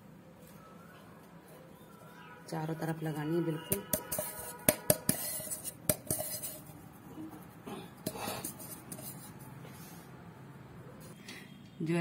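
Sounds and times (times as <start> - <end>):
metal pan clinking: 3.6 - 6.7.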